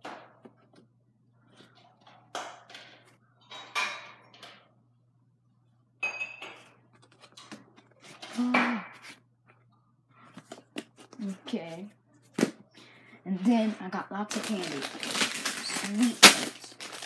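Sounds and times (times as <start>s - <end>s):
objects clattering and rustling: 0.0s - 4.8s, 6.4s - 9.1s, 10.2s - 11.6s, 13.4s - 17.0s.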